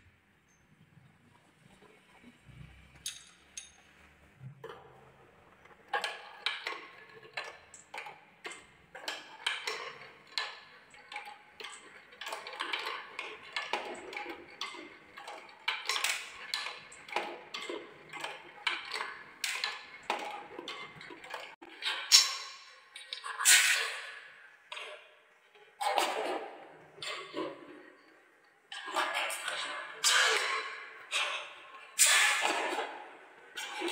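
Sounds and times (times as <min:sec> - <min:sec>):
marbles rolling on wooden track: 0:11.6 - 0:21.6.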